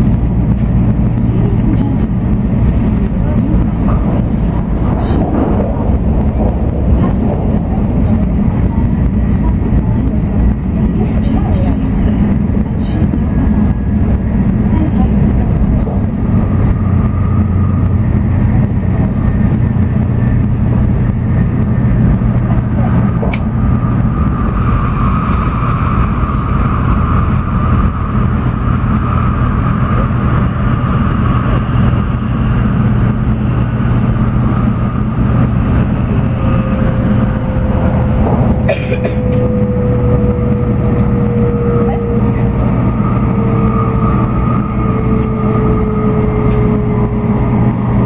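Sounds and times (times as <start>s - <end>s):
train wheels and air rumbling: 0.0s - 48.0s
faint whine falling in pitch: 22.4s - 48.0s.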